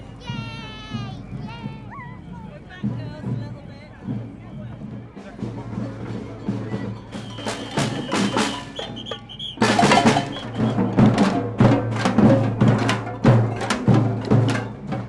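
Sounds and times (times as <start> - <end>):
marching drums beating: 0.0 - 15.0
high whistle blasts: 7.0 - 11.0.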